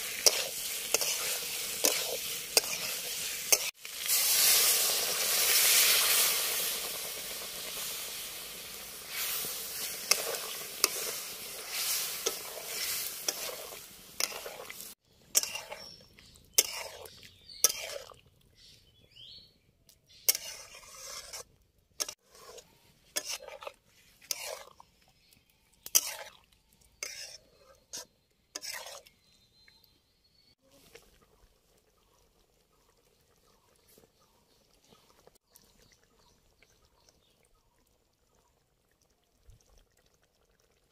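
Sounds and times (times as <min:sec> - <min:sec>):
metal ladle scraping a pan: 0:00.0 - 0:18.2, 0:20.1 - 0:24.9, 0:25.8 - 0:26.4, 0:27.0 - 0:29.2.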